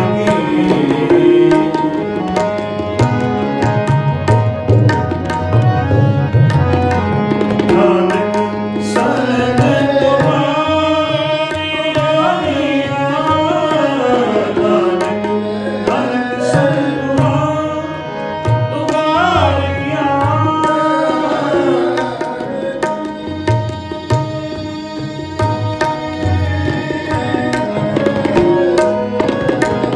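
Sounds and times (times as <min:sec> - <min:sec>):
man singing: 0:00.0 - 0:02.6, 0:07.6 - 0:25.0
tabla strokes: 0:00.0 - 0:12.6, 0:18.4 - 0:29.9
held drone: 0:00.0 - 0:29.9.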